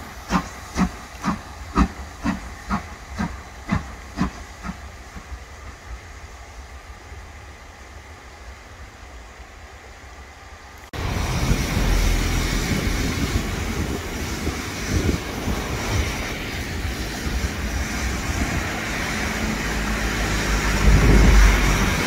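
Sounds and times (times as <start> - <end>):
steam hissing: 0.0 - 22.0
low rumble: 11.0 - 22.0.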